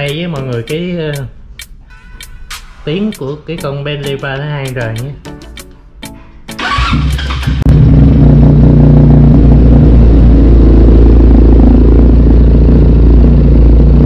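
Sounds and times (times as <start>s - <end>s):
motorcycle engine starting and idling: 6.5s - 14.0s.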